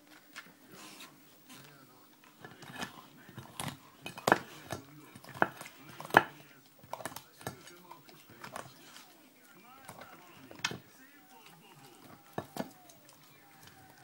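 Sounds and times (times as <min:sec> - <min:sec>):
teeth and bone knocking plate: 0:02.4 - 0:08.8, 0:09.8 - 0:14.0.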